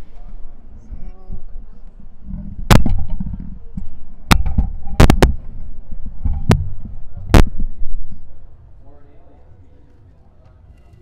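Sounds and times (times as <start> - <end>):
sharp knocks and clicks: 2.3 - 5.6, 6.2 - 7.6.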